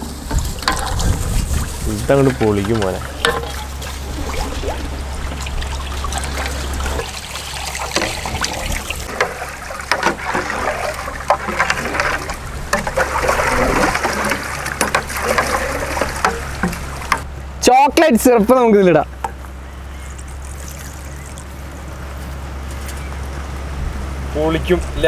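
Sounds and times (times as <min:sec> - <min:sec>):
milk splashing and trickling: 0:00.5 - 0:17.2, 0:20.0 - 0:21.8.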